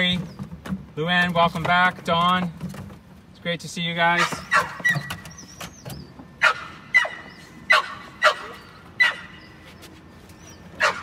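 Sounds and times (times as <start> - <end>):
dog barking in high yaps: 4.2 - 5.2, 6.4 - 9.5, 10.8 - 11.0.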